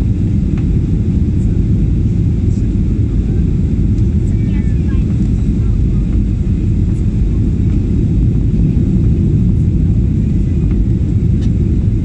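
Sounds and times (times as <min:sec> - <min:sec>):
airplane cabin engine rumble: 0:00.0 - 0:12.0.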